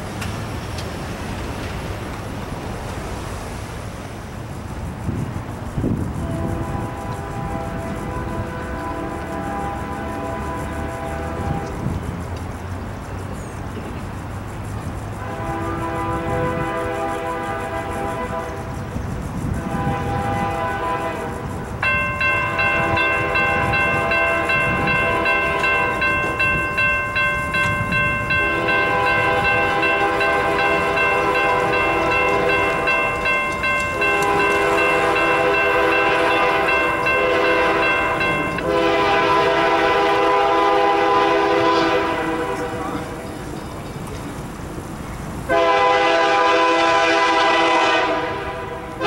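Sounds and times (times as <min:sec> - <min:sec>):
locomotive air horn blasts: 0:06.1 - 0:12.0, 0:15.2 - 0:43.2, 0:45.5 - 0:49.0
crossing warning bell ringing: 0:06.2 - 0:11.9, 0:14.7 - 0:44.3.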